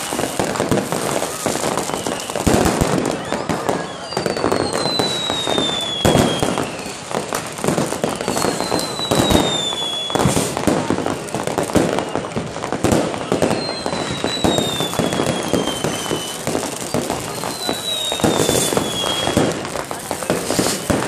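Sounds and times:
descending firework whistles: 0.0s - 21.0s
fireworks banging and crackling: 0.0s - 21.0s.

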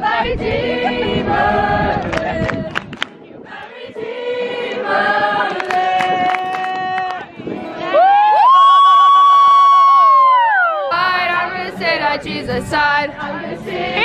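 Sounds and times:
choir singing sustained notes: 0.0s - 6.3s, 10.9s - 14.0s.

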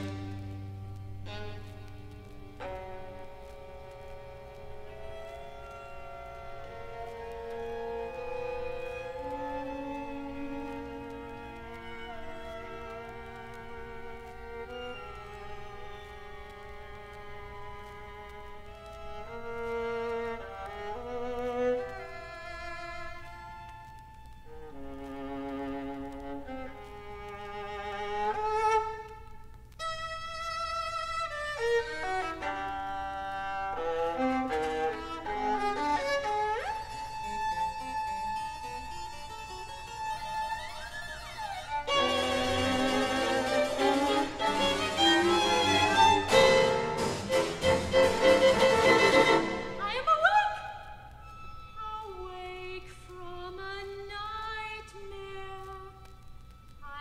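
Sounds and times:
string ensemble playing: 0.0s - 29.3s, 30.2s - 50.1s
slow soft chamber music: 0.0s - 50.4s.

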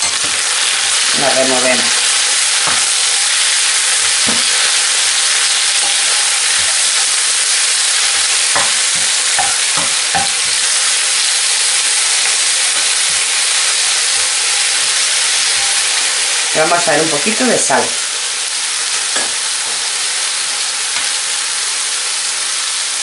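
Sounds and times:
spinach sizzling in oil: 0.0s - 23.0s
spatula knocking and scraping pan: 1.8s - 3.2s, 4.1s - 4.8s, 8.2s - 11.0s.

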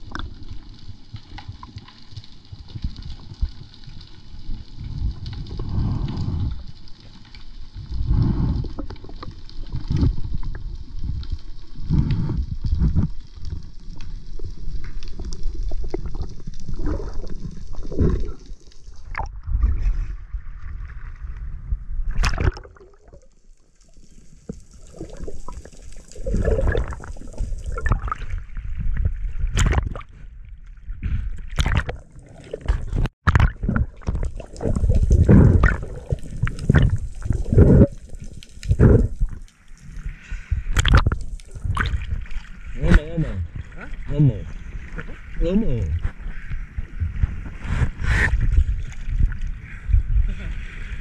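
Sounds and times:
seawater sloshing and gurgling: 7.9s - 23.3s, 23.9s - 51.0s
sharp water splashes: 22.2s - 23.2s, 29.5s - 30.1s, 31.5s - 39.4s, 40.7s - 43.6s.

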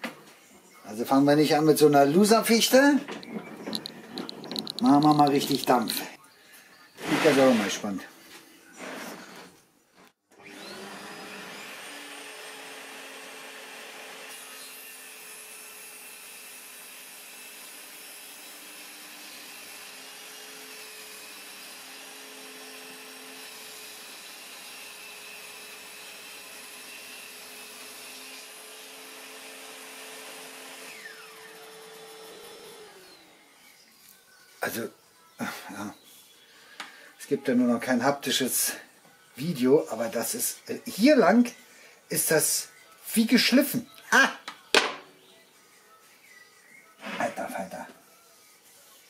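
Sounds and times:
table saw cutting wood: 2.2s - 5.9s, 10.3s - 33.5s.

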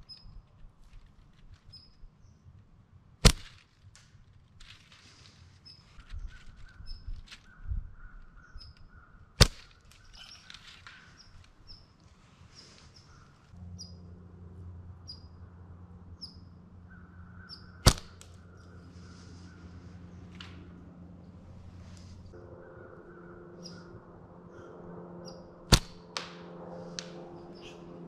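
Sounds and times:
small bird chirping: 0.0s - 0.4s, 1.7s - 2.4s, 15.0s - 15.4s, 16.2s - 18.8s
low steady hum: 13.4s - 28.0s
bow shot snap: 17.8s - 18.3s, 25.7s - 27.2s.

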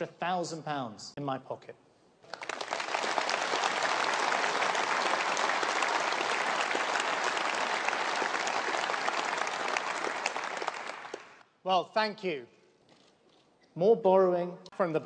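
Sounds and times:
audience applauding: 2.2s - 11.4s.

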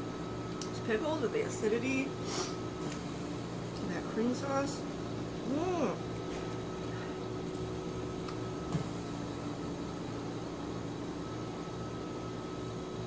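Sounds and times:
fan humming: 0.0s - 13.0s.

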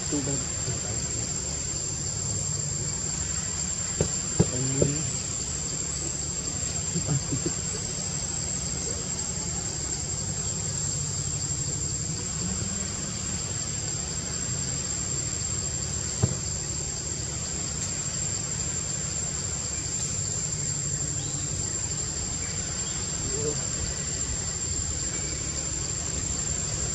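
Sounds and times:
high-pitched insect drone: 0.0s - 26.9s.

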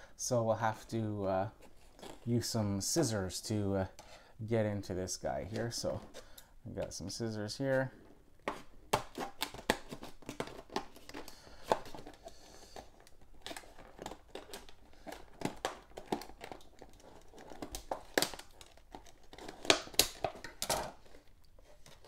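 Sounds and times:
plastic crackling and crinkling: 1.5s - 2.6s, 8.5s - 22.0s
scissors snipping plastic: 13.0s - 21.0s.

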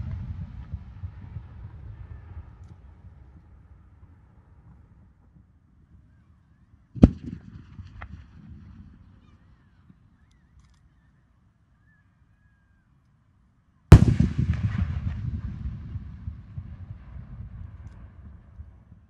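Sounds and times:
low rumble of firework burst: 0.0s - 6.1s, 13.9s - 19.0s.

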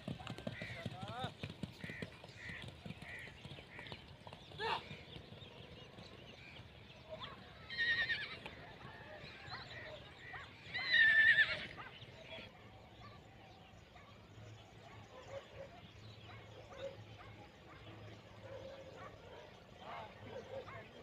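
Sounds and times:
horse whinnying: 7.7s - 8.6s, 10.7s - 11.8s.

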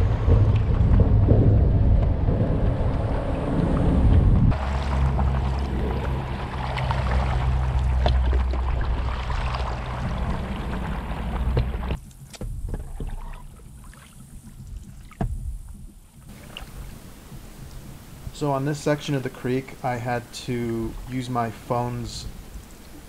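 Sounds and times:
wind on microphone: 0.0s - 13.8s
paddle splashing in water: 4.5s - 18.3s.

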